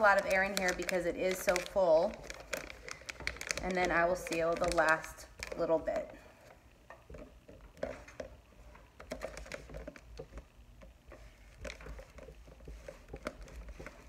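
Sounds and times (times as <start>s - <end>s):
foil bag crinkling: 0.0s - 6.5s, 9.0s - 10.5s, 11.2s - 14.0s.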